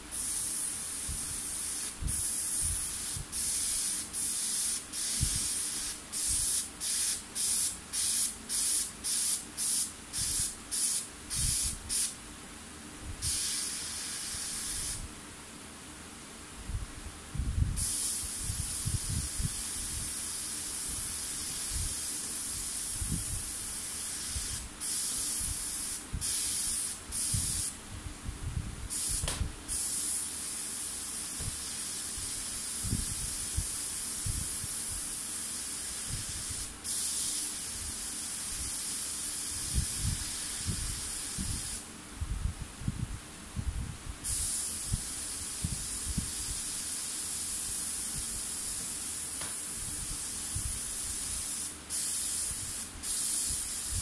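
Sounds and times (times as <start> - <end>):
airbrush hissing: 0.0 - 12.2, 13.2 - 15.1, 17.8 - 27.8, 28.9 - 41.9, 44.2 - 54.0.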